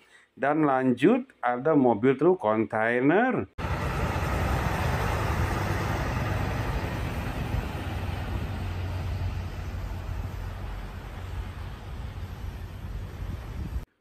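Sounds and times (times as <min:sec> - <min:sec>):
truck engine drone: 0:03.6 - 0:13.8
tyre and road noise: 0:03.6 - 0:13.8.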